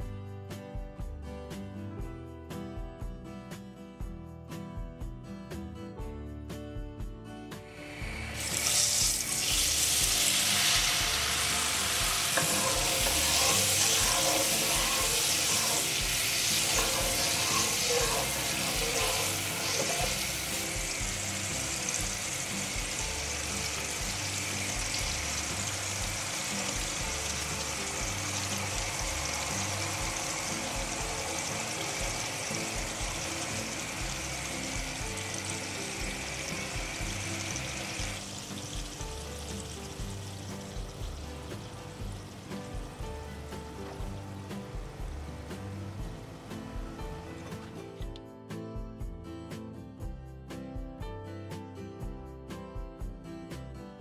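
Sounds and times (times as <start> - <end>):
oil sizzling in a frying pan: 7.6 - 47.8
water being poured: 8.1 - 20.6.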